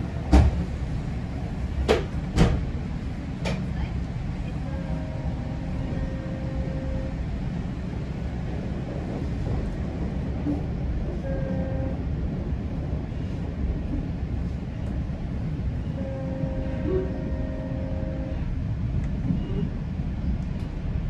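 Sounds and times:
train wheels rumbling on track: 0:00.0 - 0:21.0.

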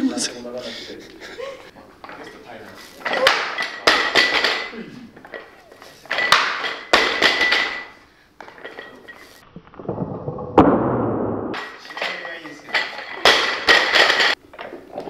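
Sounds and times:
breathy grunts: 0:04.7 - 0:05.2.

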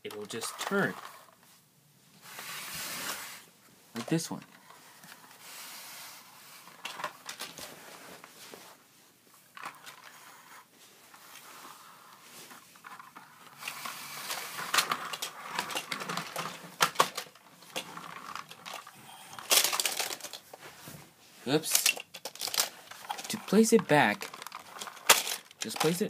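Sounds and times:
toy cars clattering: 0:00.0 - 0:01.4, 0:06.6 - 0:07.6, 0:09.5 - 0:10.6, 0:12.5 - 0:20.6, 0:21.5 - 0:26.0
toy truck clicks and rattles: 0:12.8 - 0:20.5, 0:21.6 - 0:26.0.

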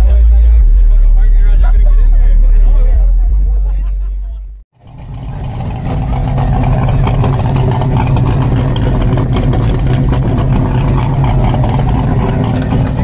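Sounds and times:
car engine idling: 0:04.8 - 0:13.0.

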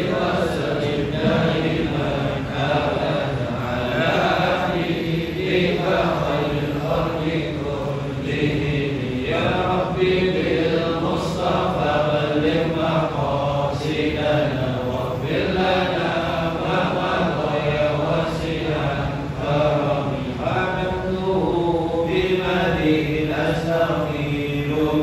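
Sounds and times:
men chanting together: 0:00.0 - 0:25.0.

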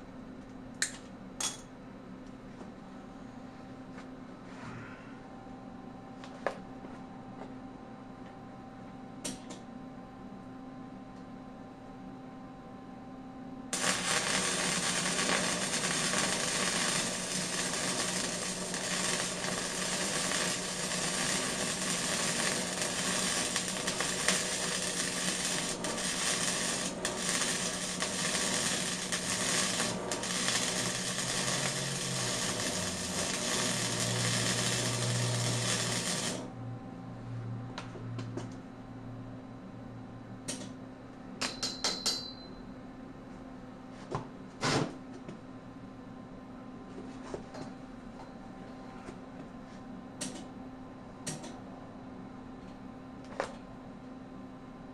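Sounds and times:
welding arc crackling: 0:13.8 - 0:36.5.

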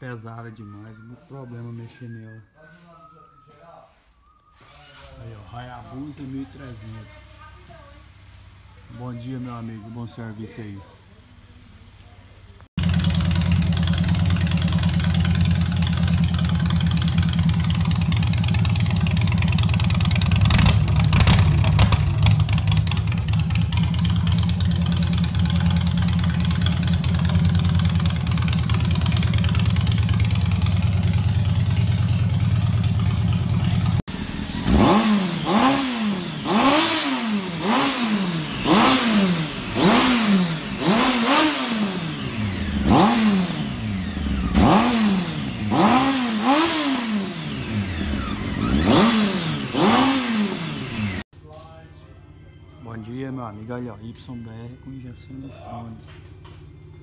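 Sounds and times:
motorcycle engine revving: 0:12.7 - 0:51.3
motorcycle engine idling: 0:12.8 - 0:34.6, 0:35.4 - 0:51.2.

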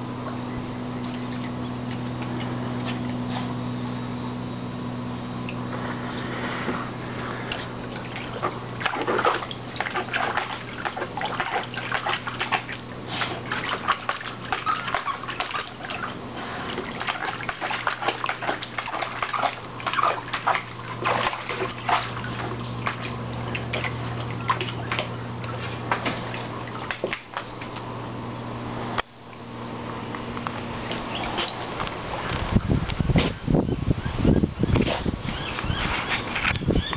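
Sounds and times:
steady low hum: 0:00.0 - 0:36.9
dog splashing water: 0:05.5 - 0:28.0.

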